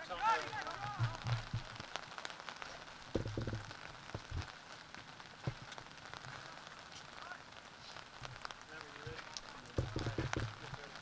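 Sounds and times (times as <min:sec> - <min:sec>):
crackling rain-like hiss: 0:00.0 - 0:11.0
dull thumps: 0:00.8 - 0:02.0, 0:03.1 - 0:04.5, 0:09.7 - 0:10.8.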